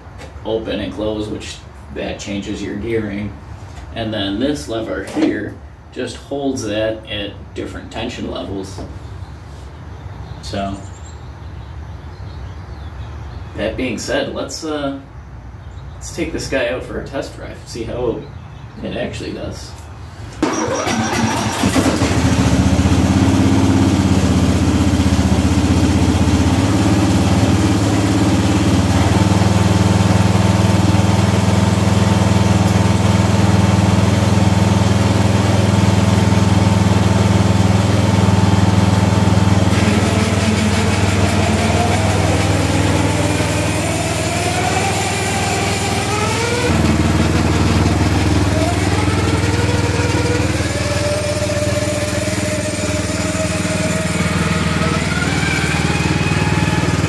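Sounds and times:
riding mower engine running: 0:20.1 - 0:57.0.

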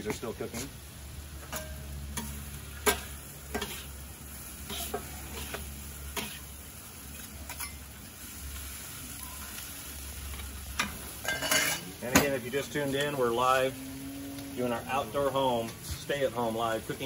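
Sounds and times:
vegetables sizzling in a wok: 0:00.0 - 0:17.0
metal spatulas scraping a wok: 0:01.5 - 0:07.9, 0:11.2 - 0:11.9.

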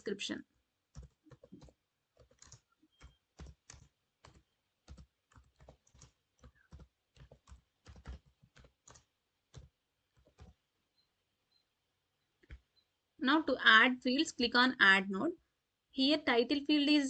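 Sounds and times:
faint keyboard typing: 0:00.8 - 0:12.9.

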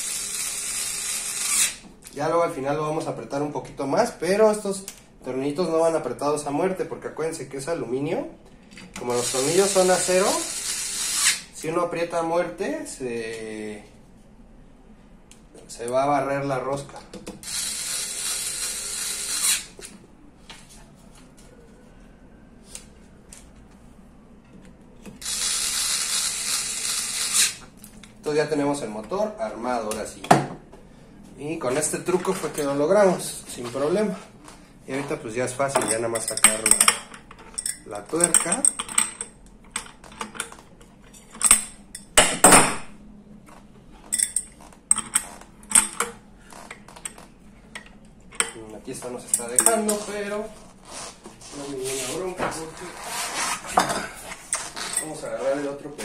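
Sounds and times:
metal tools clinking: 0:35.7 - 0:39.3, 0:44.1 - 0:46.0, 0:53.8 - 0:55.2.

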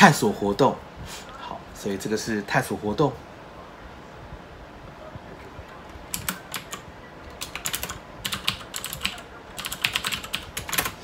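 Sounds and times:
typing on computer keyboard: 0:06.1 - 0:11.0.

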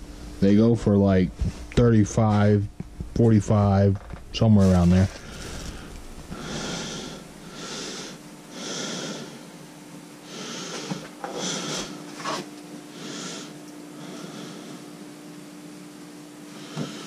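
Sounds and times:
faint steady hum: 0:00.0 - 0:17.0
person breathing heavily: 0:05.0 - 0:09.6, 0:10.2 - 0:12.0, 0:12.9 - 0:15.0, 0:16.5 - 0:17.0.

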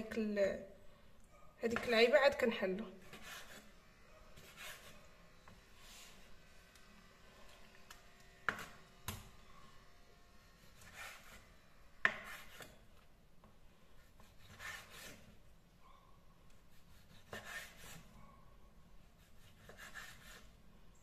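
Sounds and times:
knife slicing on wooden board: 0:03.0 - 0:03.6, 0:10.7 - 0:11.4, 0:12.0 - 0:12.8, 0:14.1 - 0:15.3, 0:16.9 - 0:18.0.

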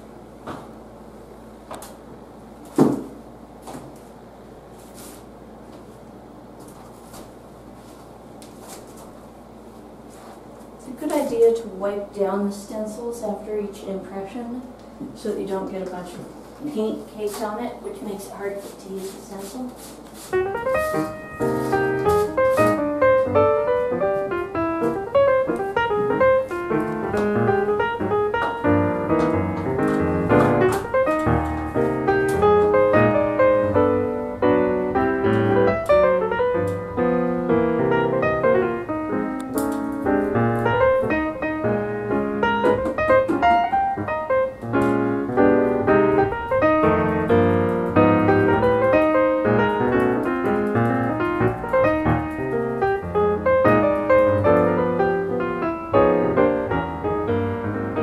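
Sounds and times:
solo piano music: 0:20.3 - 0:58.0.

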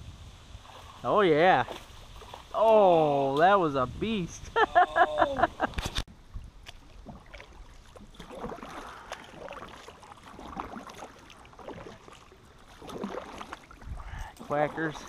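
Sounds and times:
faint water and handling sounds: 0:05.4 - 0:15.0.

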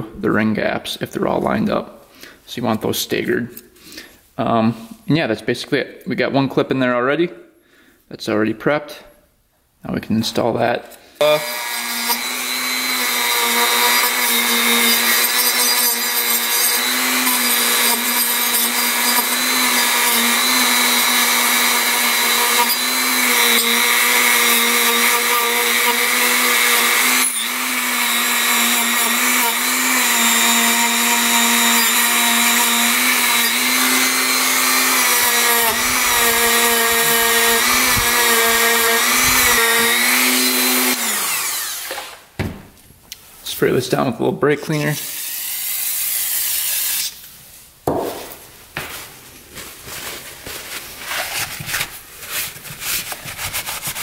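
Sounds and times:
electric power tool whine: 0:11.2 - 0:42.3.

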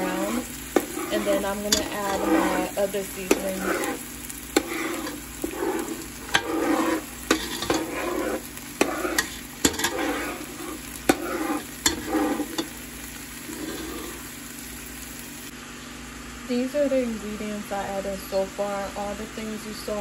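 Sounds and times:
spatula scraping a frying pan: 0:00.0 - 0:14.4
oil sizzling: 0:00.0 - 0:15.5.

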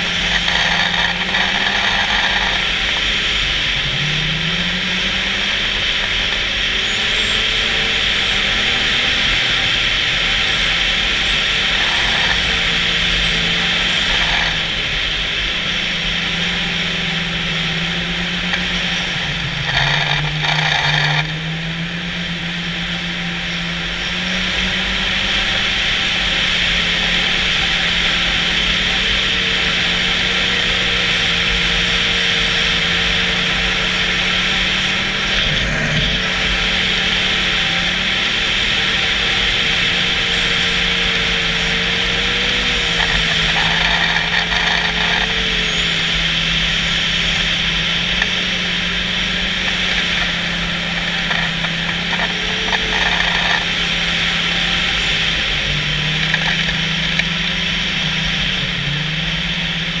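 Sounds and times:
constant rushing noise: 0:00.0 - 1:00.0
snowmobile engine running: 0:00.0 - 1:00.0.

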